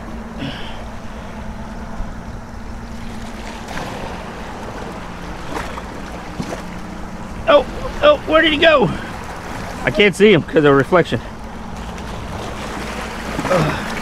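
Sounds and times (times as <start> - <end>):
waves splashing against rocks: 2.9 - 14.0.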